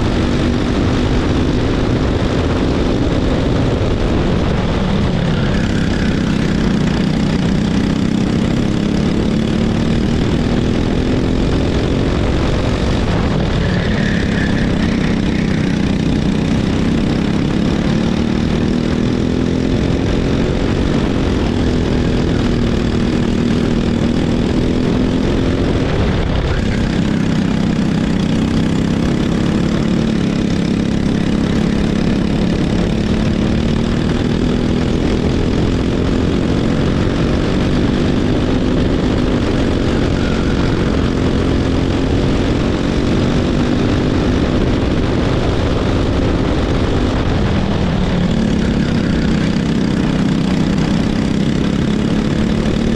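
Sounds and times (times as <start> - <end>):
kart engine running hard: 0.0 - 52.9.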